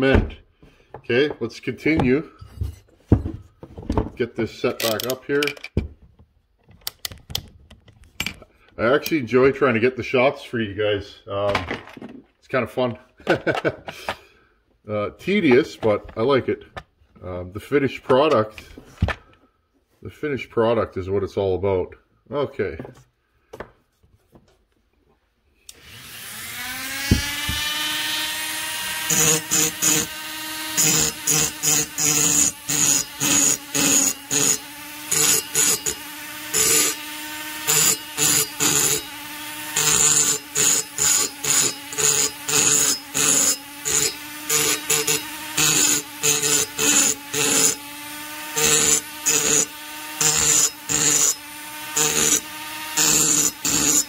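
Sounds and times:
rotary tool whine: 25.7 - 54.0
burr grinding metal: 26.4 - 54.0.

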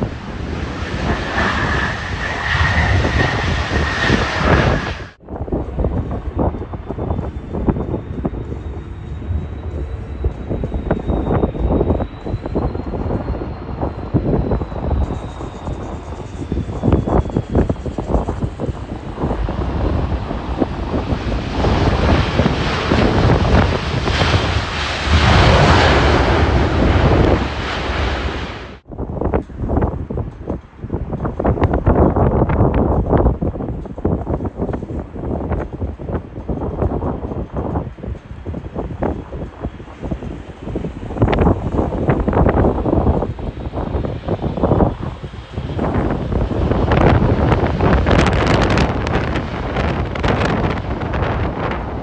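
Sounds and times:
jet engines running with whine: 0.0 - 52.0
wind buffeting microphone: 0.0 - 52.0.

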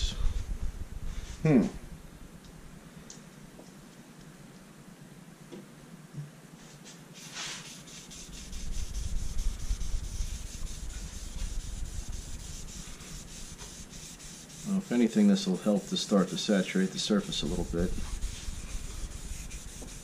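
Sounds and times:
cloth rubbing on wood: 6.6 - 20.0.

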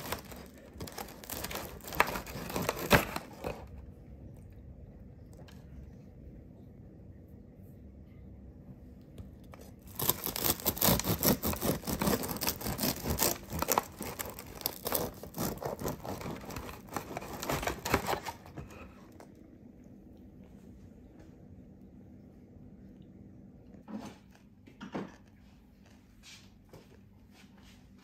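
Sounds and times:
bread knife sawing crusty loaf: 0.0 - 3.6, 9.9 - 18.4.

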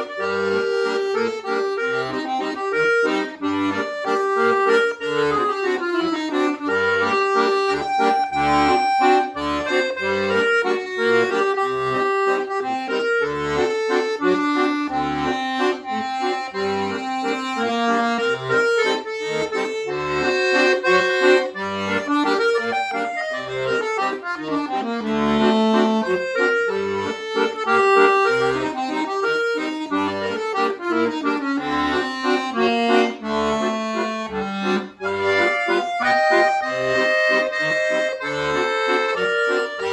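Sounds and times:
button accordion solo: 0.0 - 39.9.

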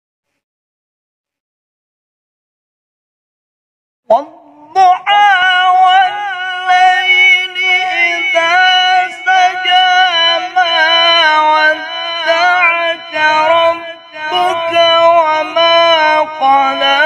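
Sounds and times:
man singing melodic recitation: 4.1 - 17.0.

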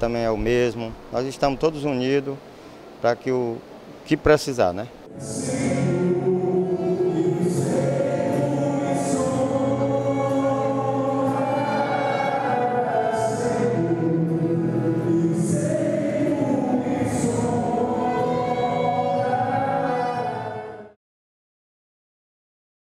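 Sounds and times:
choir singing held notes: 5.0 - 21.0.

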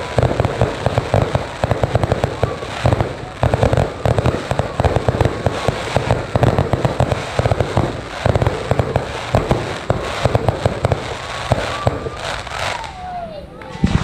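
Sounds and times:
fireworks bursting and crackling: 0.0 - 14.0.

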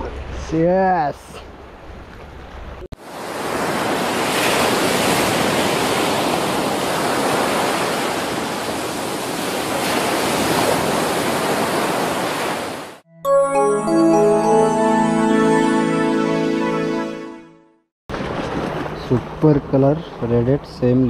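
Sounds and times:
ocean waves breaking: 1.6 - 12.9.

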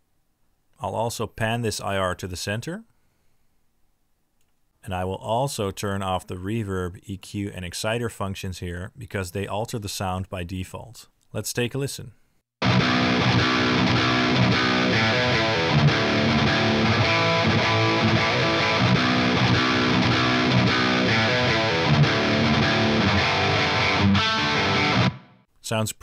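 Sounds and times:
distorted electric guitar riff: 12.6 - 25.4.

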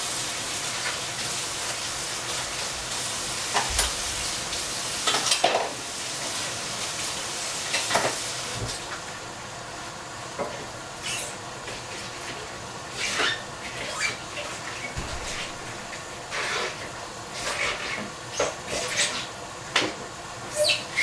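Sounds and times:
food sizzling in frying pan: 0.0 - 10.2
utensil scraping pan: 13.0 - 19.3.

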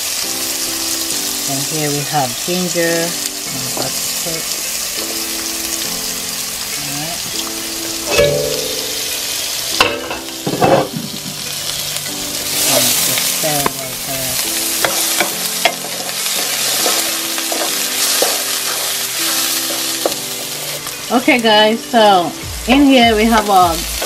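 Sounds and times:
onions sizzling in oil: 0.0 - 24.0
wooden spatula scraping and knocking: 14.8 - 19.0.

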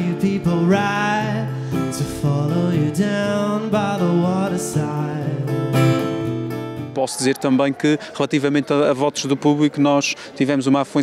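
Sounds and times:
man singing slow song: 0.0 - 6.2
acoustic guitar: 0.0 - 7.0.

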